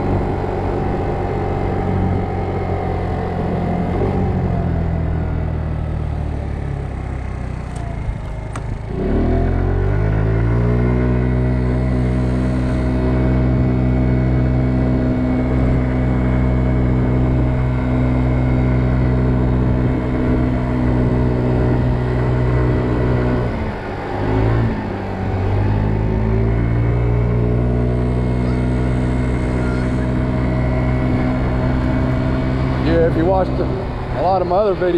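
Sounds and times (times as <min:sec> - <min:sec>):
scooter engine running: 0:00.0 - 0:34.9.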